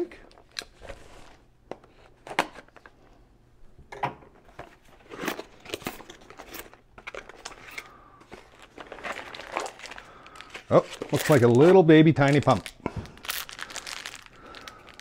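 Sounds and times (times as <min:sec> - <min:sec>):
paper crinkling and rustling: 0:05.2 - 0:15.0.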